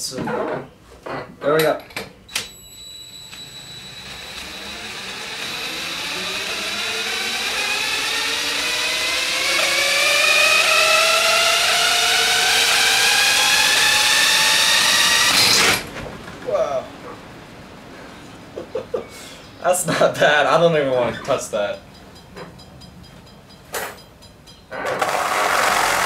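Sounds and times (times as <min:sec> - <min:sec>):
cordless drill whine: 0:02.3 - 0:15.9, 0:24.7 - 0:26.0.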